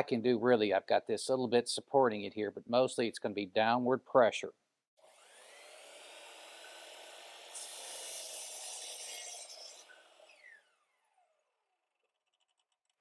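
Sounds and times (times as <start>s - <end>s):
miter saw motor running: 5.0s - 11.4s
saw blade cutting plywood: 5.0s - 11.4s
saw blade winding down: 5.0s - 11.7s.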